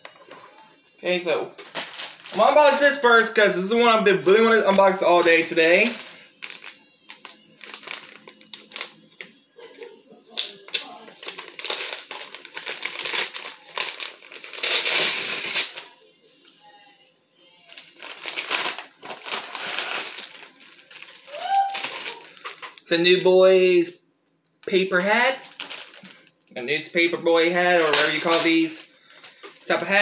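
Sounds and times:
plastic packaging crinkling: 1.6s - 3.0s, 3.8s - 9.4s, 10.3s - 15.9s, 17.6s - 23.3s, 24.6s - 26.3s, 27.6s - 30.0s.

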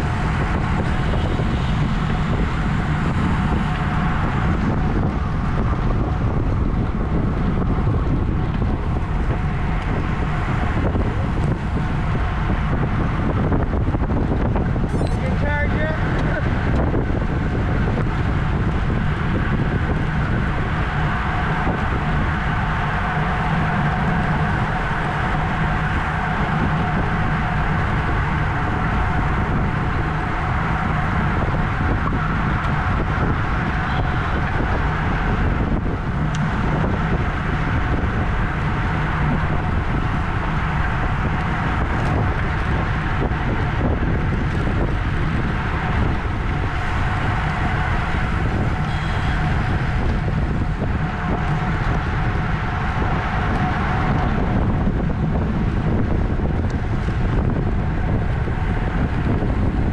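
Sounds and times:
bicycle tyres and drivetrain hum: 0.0s - 59.9s
wind rush over microphone: 0.0s - 59.9s.

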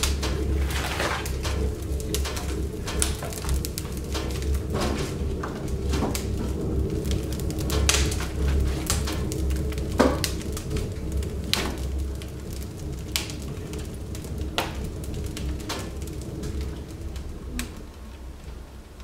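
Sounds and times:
firewood knocking: 0.0s - 6.5s
steady low hum: 0.0s - 19.0s
wood fire crackling: 0.0s - 19.0s.

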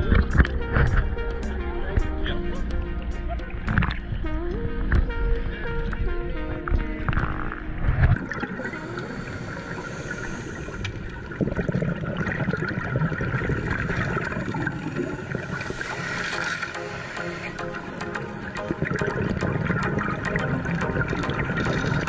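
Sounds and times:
underwater water noise: 0.0s - 22.0s
bubbling rush: 7.1s - 22.0s.

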